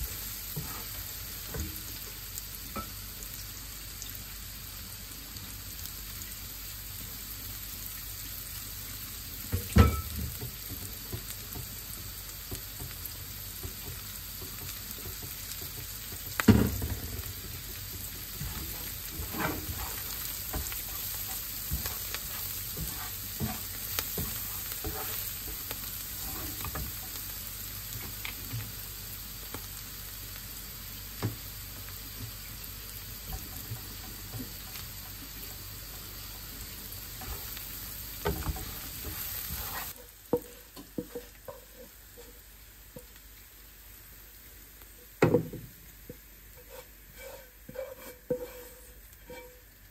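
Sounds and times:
vegetables sizzling in frying pan: 0:00.0 - 0:49.9
wooden spatula scraping pan: 0:17.3 - 0:27.1, 0:37.1 - 0:42.4, 0:46.5 - 0:49.7.

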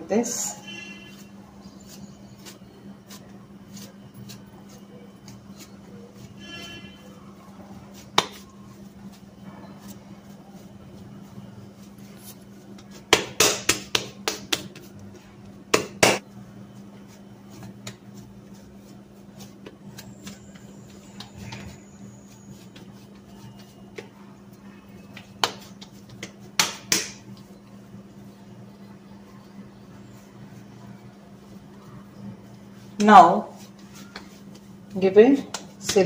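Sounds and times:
hands slapping bread dough: 0:07.8 - 0:09.2, 0:11.7 - 0:15.0, 0:15.7 - 0:16.3, 0:17.0 - 0:27.6, 0:32.8 - 0:36.0.

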